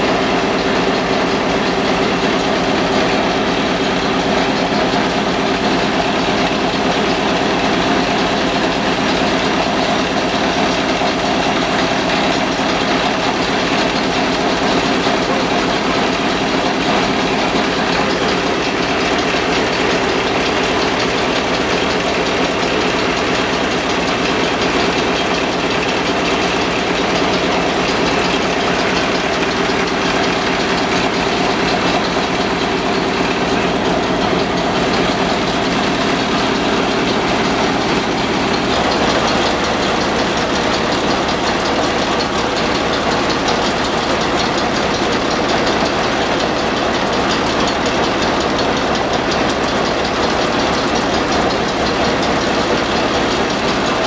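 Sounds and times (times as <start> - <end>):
old oil engines clattering: 0.0 - 54.0.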